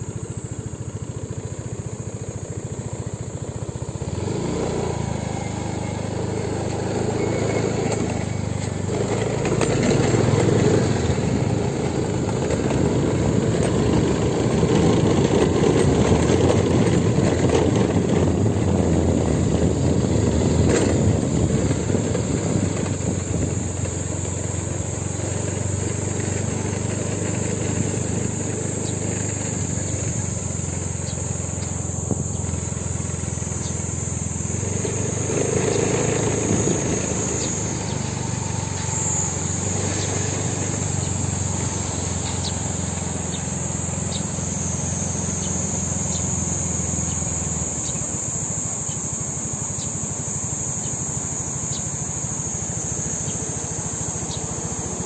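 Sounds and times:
high-pitched insect chorus: 0.0 - 55.0.

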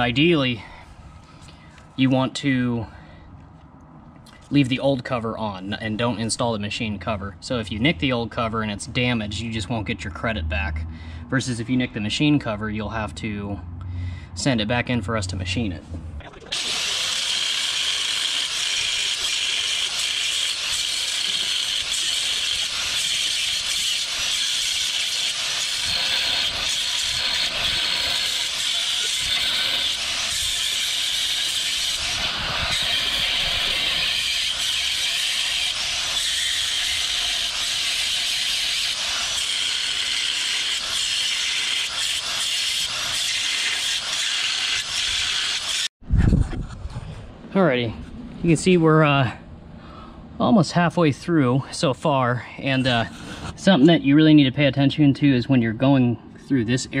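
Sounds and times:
angle grinder cutting metal: 16.5 - 45.9.

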